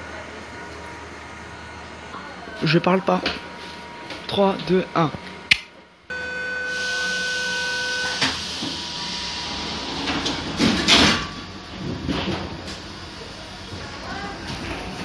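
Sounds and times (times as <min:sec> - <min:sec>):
steady warning beep: 0:06.1 - 0:08.2
sliding doors closing with hiss: 0:08.0 - 0:15.0.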